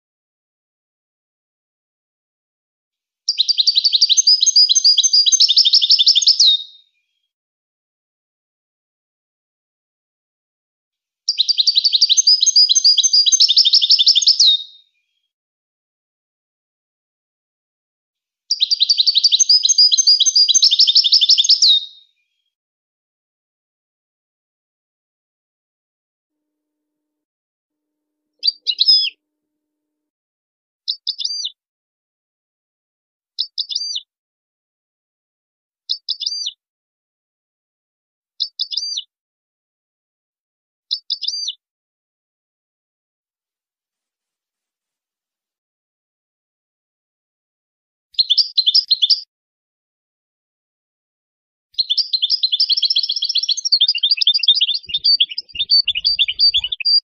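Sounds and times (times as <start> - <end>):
goldfinch twittering song: 3.3 - 6.7, 11.3 - 14.7, 18.5 - 22.0, 28.4 - 29.1, 30.9 - 31.6, 33.4 - 34.0, 40.9 - 41.6, 48.2 - 49.3, 51.8 - 57.0.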